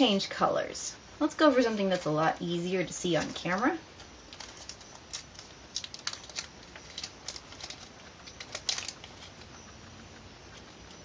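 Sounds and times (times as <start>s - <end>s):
plastic bag of pellets crinkling: 3.3s - 9.5s.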